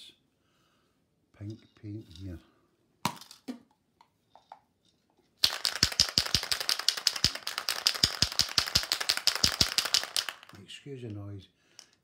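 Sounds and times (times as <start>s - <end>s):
spray can ball rattling: 5.4s - 10.6s.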